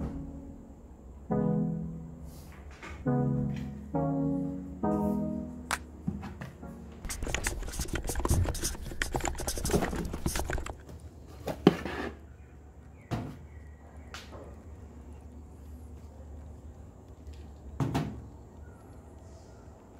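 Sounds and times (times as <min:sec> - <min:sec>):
plastic jars and packets rustling: 0:07.1 - 0:10.9.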